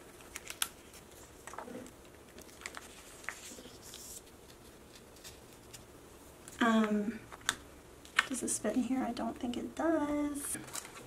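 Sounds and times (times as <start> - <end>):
plastic rustling: 0.0 - 5.9, 10.5 - 11.0
plastic sleeves clicking and crinkling: 0.1 - 5.8.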